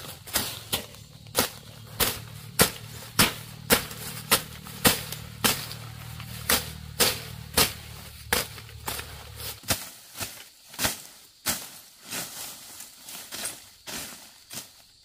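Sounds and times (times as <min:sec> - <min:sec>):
low steady hum: 0:00.0 - 0:09.6
sharp strikes: 0:00.3 - 0:09.8.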